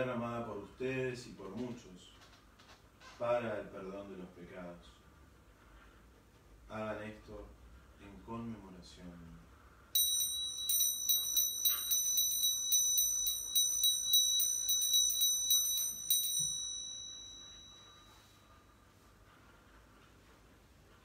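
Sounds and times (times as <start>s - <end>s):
altar bells shaken: 10.0s - 18.6s.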